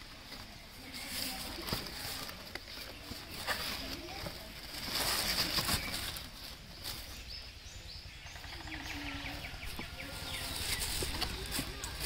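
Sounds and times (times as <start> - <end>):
tissue paper rustling and crinkling: 0.2 - 7.2, 10.1 - 12.0
faint bird chirps: 5.4 - 11.4.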